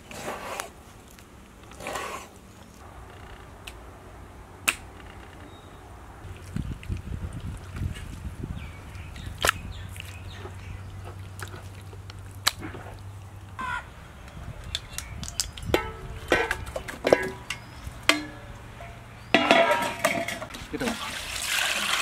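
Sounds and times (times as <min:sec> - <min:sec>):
metal cookware clanking: 0:15.7 - 0:20.6.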